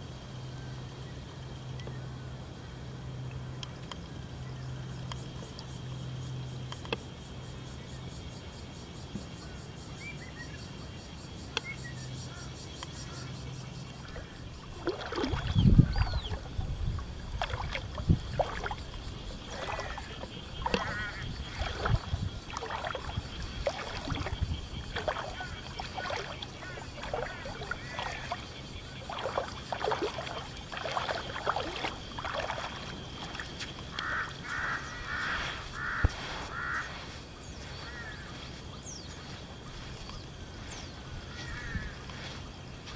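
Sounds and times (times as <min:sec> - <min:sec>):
faint high hum: 0:00.0 - 0:42.8
birds calling: 0:11.5 - 0:42.9.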